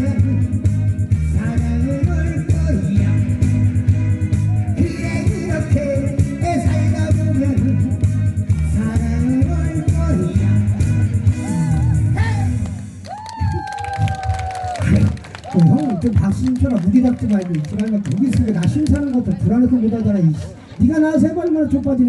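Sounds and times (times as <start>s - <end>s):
man singing into microphone: 0.0s - 0.7s, 1.3s - 3.4s, 4.8s - 10.7s
amplified backing track with bass: 0.0s - 22.0s.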